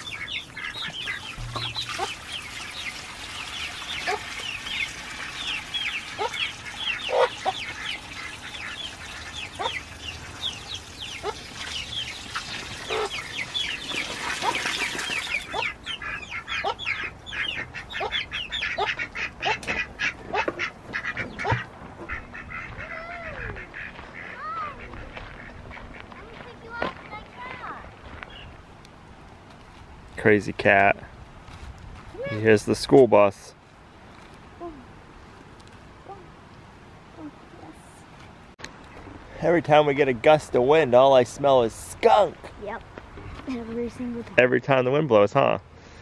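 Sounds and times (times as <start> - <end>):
chicks peeping: 0.0 - 26.5
water pouring into a pan: 1.5 - 15.5.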